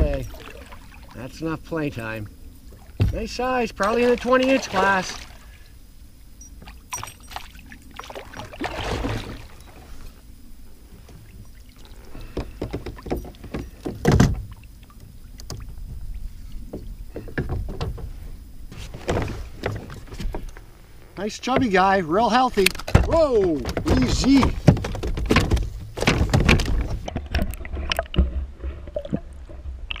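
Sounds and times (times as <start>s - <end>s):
knocks and rustles in kayak: 0.0s - 5.4s, 6.4s - 10.2s, 10.8s - 30.0s
water splashes: 0.0s - 5.6s, 6.6s - 10.2s.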